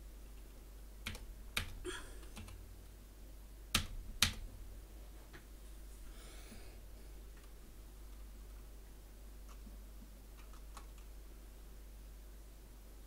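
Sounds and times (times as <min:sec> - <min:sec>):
keyboard key presses: 0:01.0 - 0:02.6, 0:03.7 - 0:04.5.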